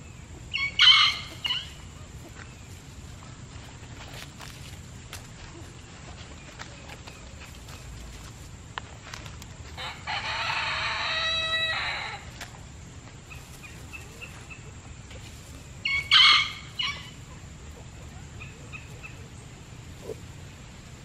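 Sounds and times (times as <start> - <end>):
harsh chicken call: 0.5 - 1.8, 9.8 - 12.3
rooster crowing: 0.5 - 1.8, 9.8 - 12.4, 15.8 - 17.2
chickens clucking softly: 13.2 - 20.6.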